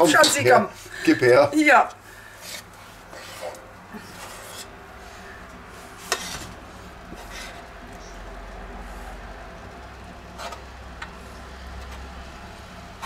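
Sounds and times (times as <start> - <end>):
spoon scraping saucepan: 2.4 - 4.8, 6.0 - 8.2, 10.4 - 10.7.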